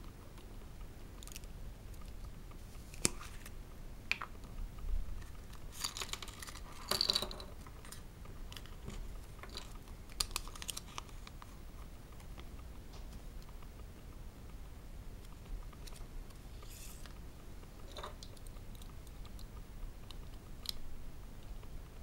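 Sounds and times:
foil and paper crinkling: 0:10.2 - 0:11.3.

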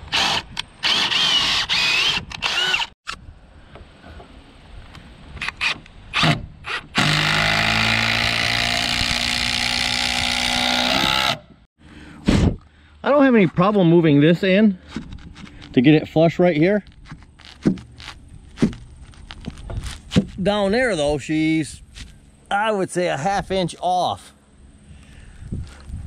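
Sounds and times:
cordless drill boring into wood: 0:00.1 - 0:03.0, 0:05.6 - 0:11.4.

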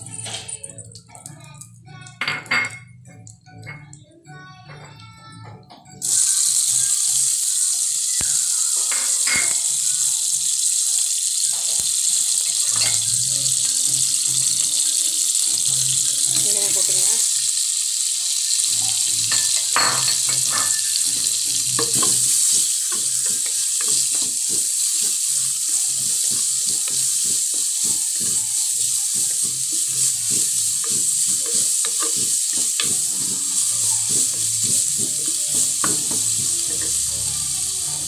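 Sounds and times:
onions sizzling in oil: 0:05.9 - 0:38.0
spatula scraping and knocking pot: 0:19.3 - 0:37.1.

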